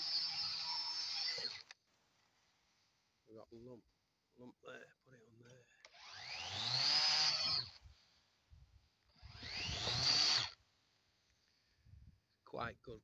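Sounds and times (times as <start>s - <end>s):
power tool motor whine: 0.0s - 1.7s, 5.9s - 7.8s, 9.1s - 10.6s.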